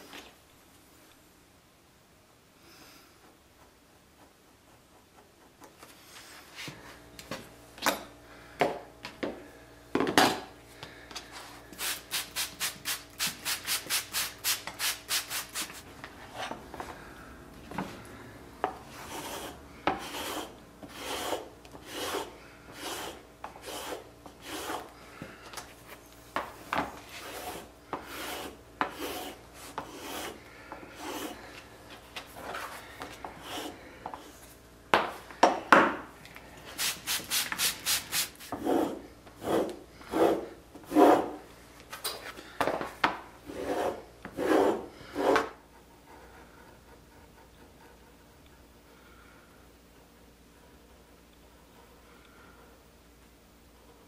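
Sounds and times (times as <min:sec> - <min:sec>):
glass slicker rasping on leather: 0:19.0 - 0:24.9, 0:27.1 - 0:30.4.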